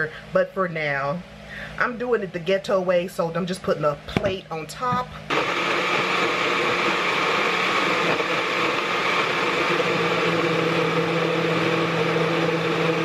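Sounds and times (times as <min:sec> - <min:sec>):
blender running: 0:05.2 - 0:13.0.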